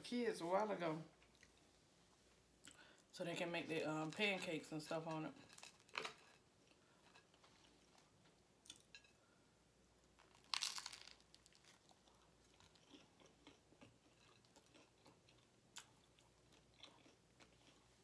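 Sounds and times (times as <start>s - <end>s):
faint chewing: 1.2s - 1.8s, 5.2s - 9.2s, 10.1s - 18.0s.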